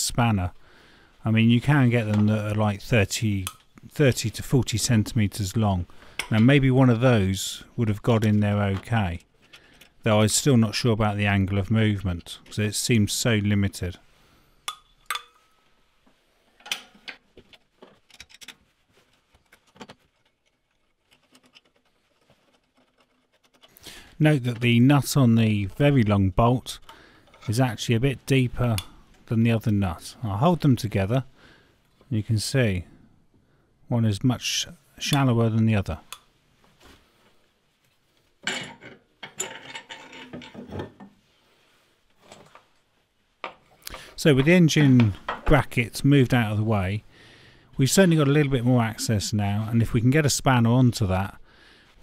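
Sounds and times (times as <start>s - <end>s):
metal nuts and bolts clinking: 14.7s - 15.7s, 16.6s - 18.7s, 38.4s - 40.8s.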